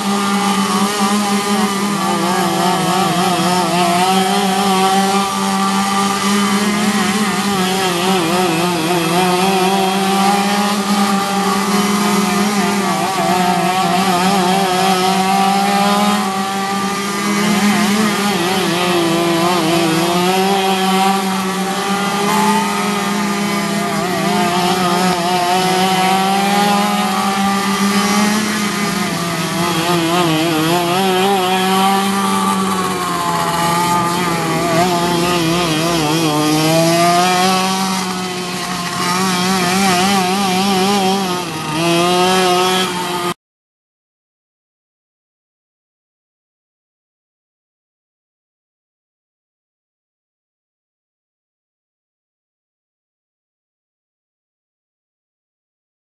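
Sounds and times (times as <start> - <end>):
racing kart engines revving: 0.0 - 43.4.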